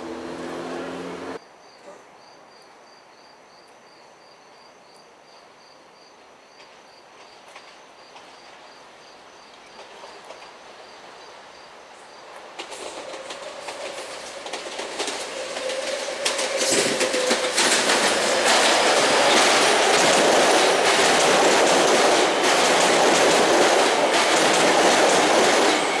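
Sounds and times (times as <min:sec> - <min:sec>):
electric train approaching: 0:00.0 - 0:01.4, 0:07.2 - 0:26.0
insects chirping: 0:01.4 - 0:21.4
faint clicks from rails: 0:06.6 - 0:08.6, 0:09.5 - 0:10.6, 0:12.3 - 0:25.8.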